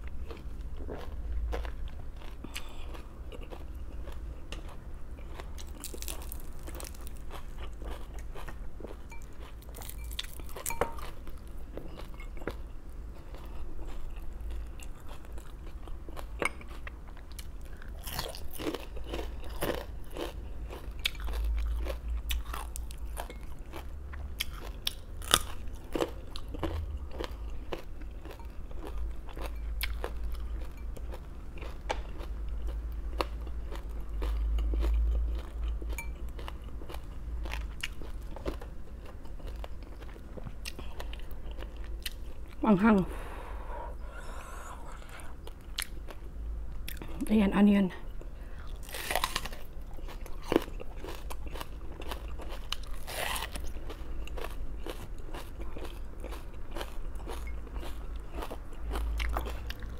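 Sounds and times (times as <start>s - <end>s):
crunching raw vegetables: 0.0s - 12.6s, 48.6s - 59.9s
low hum: 43.0s - 47.3s.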